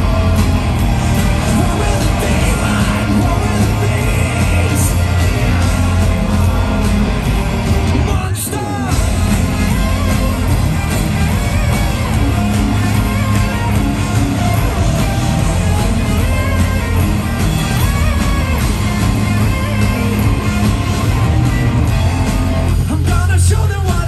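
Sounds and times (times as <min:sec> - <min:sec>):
drums: 0:00.0 - 0:24.0
electric guitar: 0:00.0 - 0:24.0
keyboards: 0:00.0 - 0:24.0
person singing and shouting: 0:01.0 - 0:07.2, 0:08.0 - 0:16.7.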